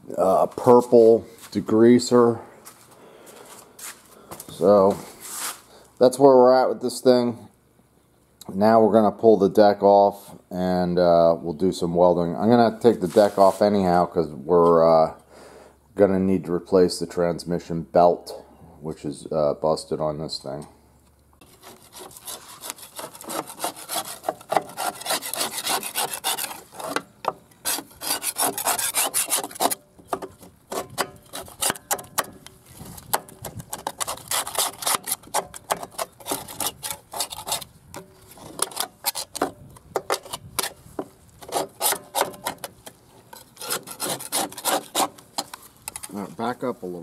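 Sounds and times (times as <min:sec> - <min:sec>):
metal scraper scraping mower deck: 0:21.4 - 0:32.3, 0:33.0 - 0:40.8, 0:41.4 - 0:46.2.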